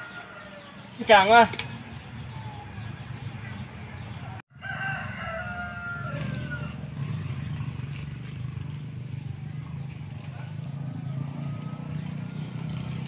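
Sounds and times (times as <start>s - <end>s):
rooster crowing: 0.0s - 0.9s, 4.0s - 7.2s, 10.3s - 12.8s.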